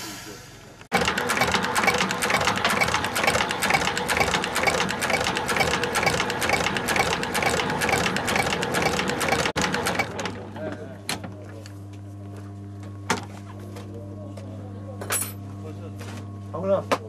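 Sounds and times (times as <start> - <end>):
sewing machine stitching: 0.9 - 10.4
sewing machine motor hum: 0.9 - 10.8.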